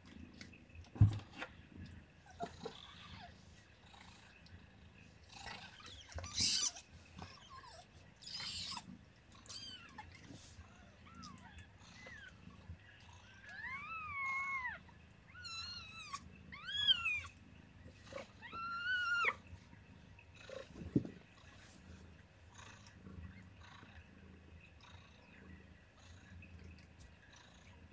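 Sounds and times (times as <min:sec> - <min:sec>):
kittens mewing: 0:05.4 - 0:12.4, 0:13.0 - 0:17.4, 0:18.0 - 0:19.5.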